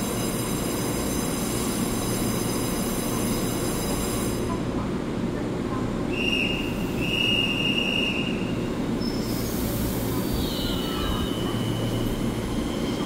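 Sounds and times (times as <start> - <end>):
electric train rumbling: 0.0 - 13.0
high-pitched wheel squeal: 9.0 - 13.0.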